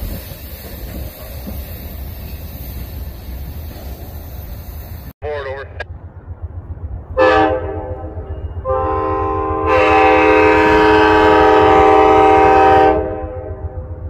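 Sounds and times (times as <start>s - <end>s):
locomotive air horn blast: 7.2s - 14.0s.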